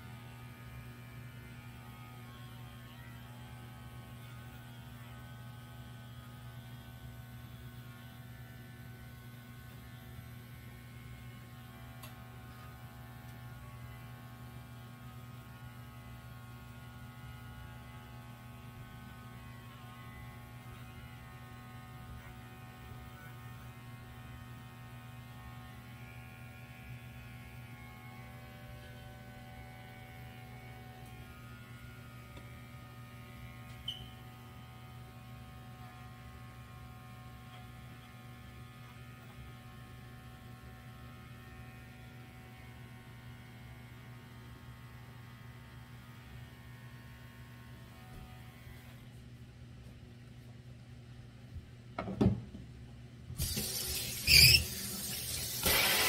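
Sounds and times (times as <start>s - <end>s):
electric pet clipper buzzing: 0.0s - 49.2s, 53.4s - 56.0s.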